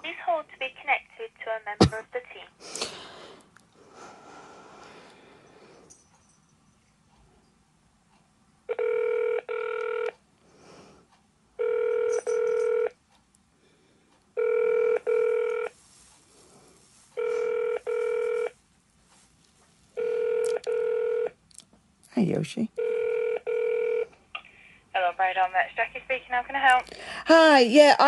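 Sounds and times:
phone ringing tone: 8.7 - 10.2, 11.6 - 13.0, 14.4 - 15.8, 17.2 - 18.6, 20.0 - 21.4, 22.8 - 24.1.

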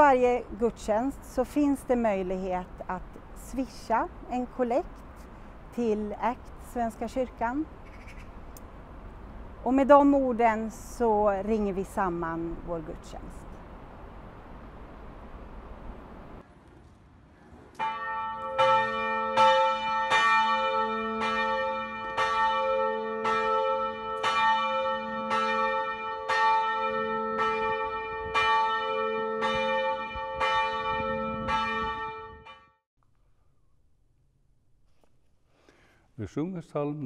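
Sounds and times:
church bell ringing: 17.8 - 32.7.

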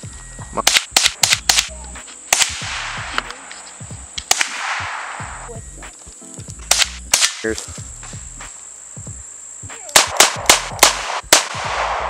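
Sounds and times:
handgun shots echoing: 0.7 - 1.7, 2.3 - 3.3, 4.2 - 5.2, 6.7 - 7.6, 10.0 - 12.0.

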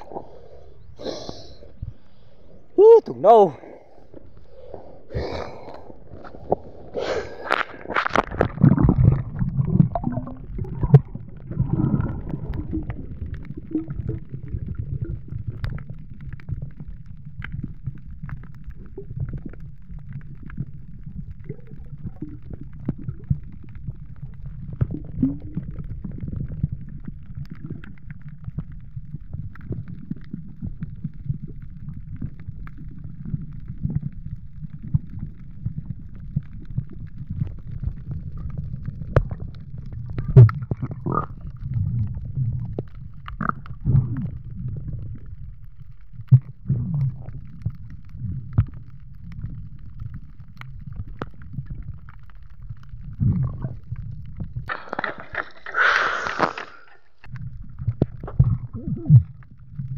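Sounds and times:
muffled underwater rumble: 0.0 - 59.9
water splashing and churning: 2.8 - 16.0, 37.2 - 45.2
faint underwater clicks: 3.4 - 59.9.

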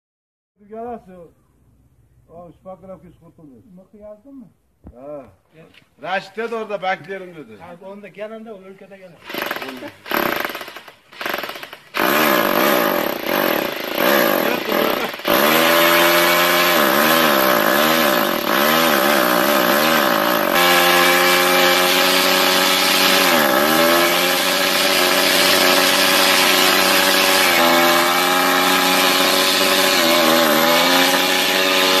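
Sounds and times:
electric drills whining: 9.2 - 32.0.

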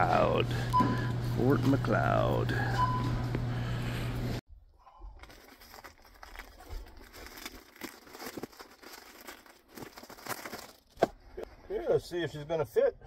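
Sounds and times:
plastic wrapping crinkling: 5.0 - 11.1.

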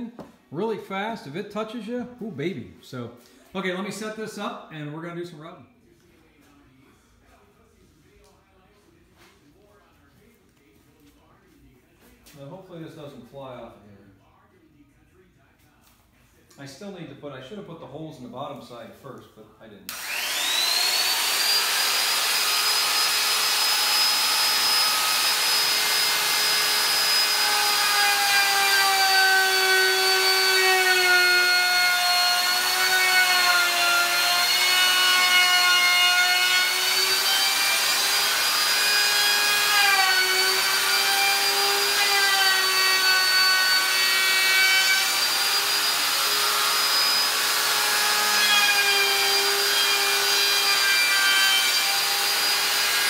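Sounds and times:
router whining: 19.9 - 53.0.

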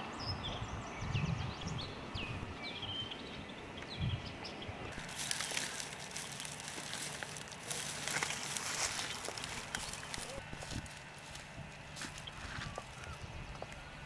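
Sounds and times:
small birds chirping: 0.0 - 14.0
footsteps on dry reeds: 4.9 - 13.8
plastic bag rustling: 5.0 - 13.0.

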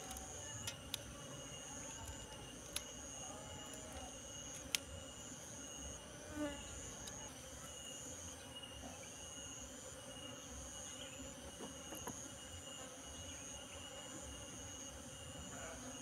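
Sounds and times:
insect trilling: 0.0 - 9.6
bees buzzing: 0.0 - 16.0.

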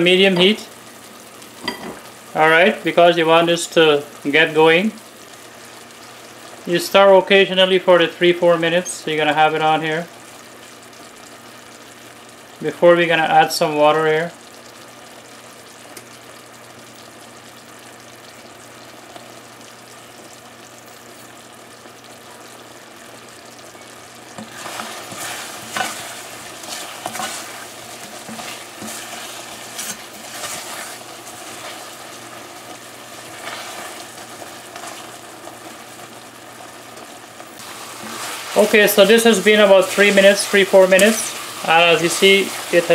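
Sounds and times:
fruit sizzling in bubbling syrup: 0.0 - 42.9
spatula stirring in a pot: 24.3 - 42.9.

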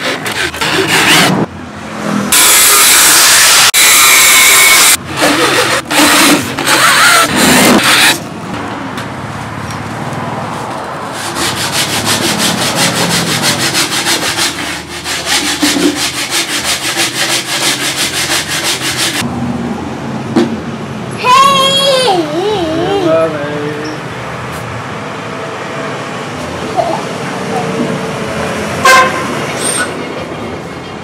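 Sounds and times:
rhythmic rubbing strokes: 11.2 - 19.2.

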